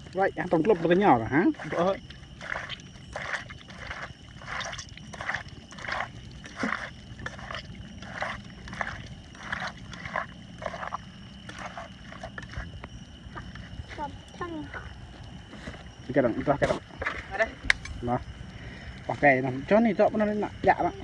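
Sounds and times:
hand squelching raw meat: 0:00.6 - 0:14.9.

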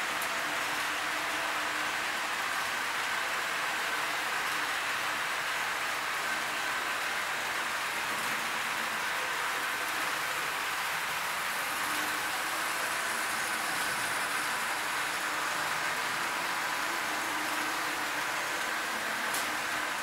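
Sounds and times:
faint motor whine: 0:00.0 - 0:20.0
model train wheels rolling: 0:00.0 - 0:20.0.

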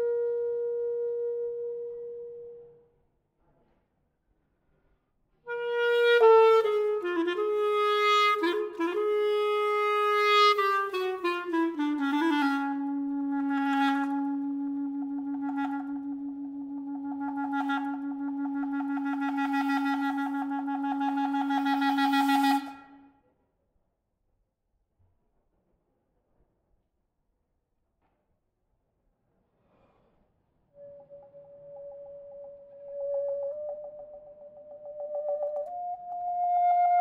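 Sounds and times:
solo clarinet: 0:00.0 - 0:02.9, 0:05.5 - 0:23.2, 0:30.8 - 0:37.0.

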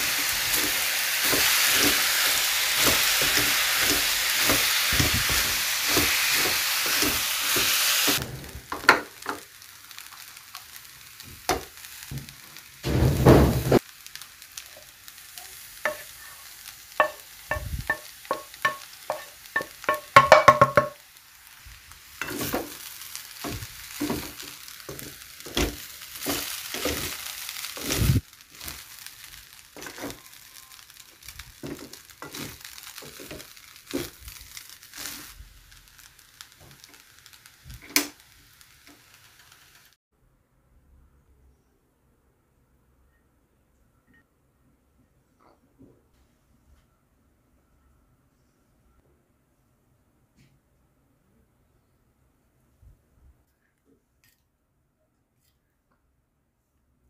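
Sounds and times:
rice sizzling in pan: 0:00.0 - 0:40.0
wooden spatula scraping pan: 0:31.6 - 0:34.2.

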